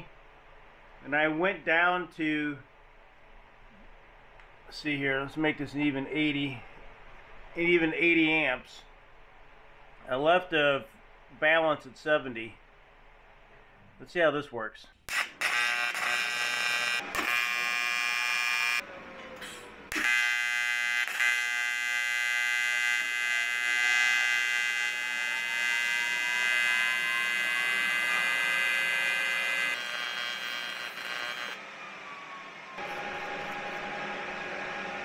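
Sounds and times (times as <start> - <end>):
welding arc buzzing: 15.1 - 18.8, 19.9 - 31.6.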